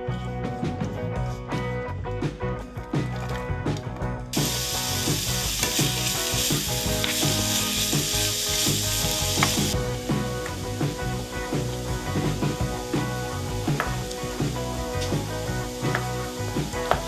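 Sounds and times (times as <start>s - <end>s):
background music: 0.0s - 17.0s
vegetables sizzling in hot oil: 4.4s - 17.0s.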